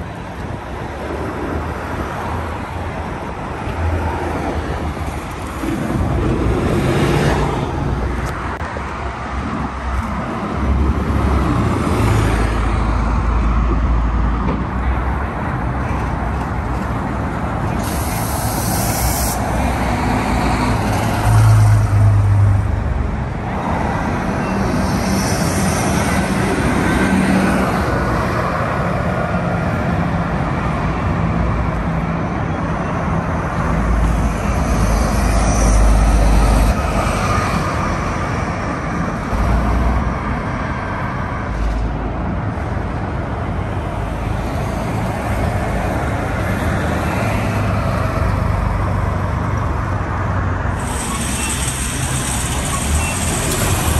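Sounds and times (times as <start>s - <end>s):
bus engines passing: 0.0s - 53.9s
road noise: 0.0s - 53.9s
short hiss: 17.8s - 19.4s.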